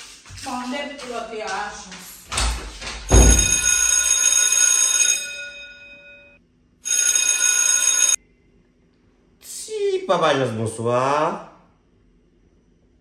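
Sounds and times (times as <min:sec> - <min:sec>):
phone ringtone ringing: 0:03.2 - 0:08.2.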